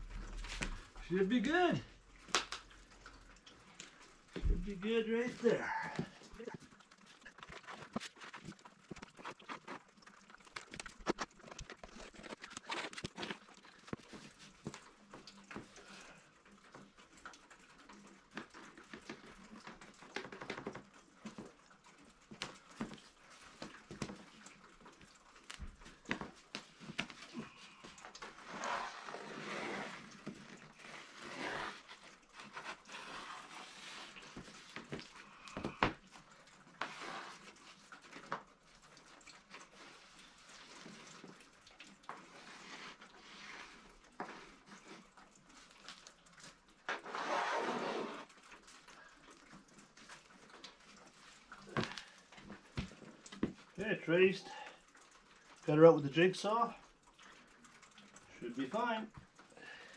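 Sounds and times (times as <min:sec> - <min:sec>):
pencil scratching on wood: 0:30.9 - 0:34.2.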